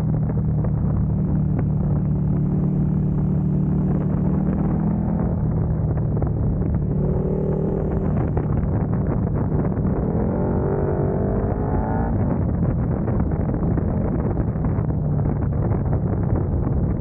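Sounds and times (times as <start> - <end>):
motorcycle engine running: 0.0 - 17.0
wind and road noise: 0.0 - 17.0.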